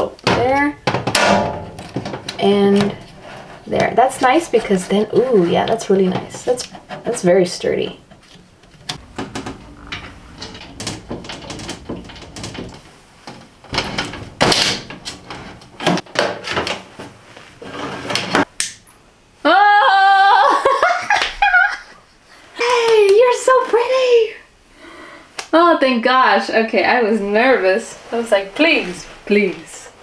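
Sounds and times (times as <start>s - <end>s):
clicks and rattles of fixtures handled: 0.2s - 3.1s, 8.1s - 16.8s
woman squealing: 19.4s - 20.6s
woman laughing: 19.5s - 22.0s.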